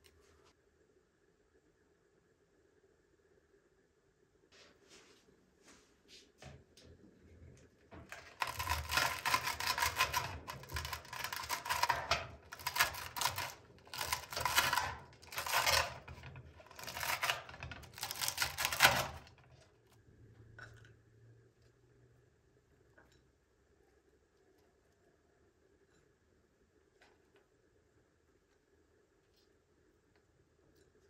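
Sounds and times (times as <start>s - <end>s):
metal spatula scraping pot: 8.1s - 19.8s.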